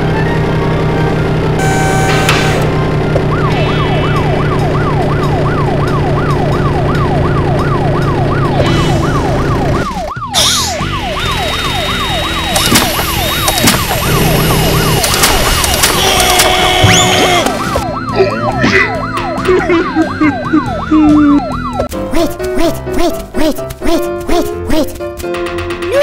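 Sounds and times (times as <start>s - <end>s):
low motor hum: 0.0s - 10.2s
police siren wailing: 0.0s - 21.9s
circular saw whine: 1.6s - 4.3s
sharp clicks: 15.0s - 16.7s.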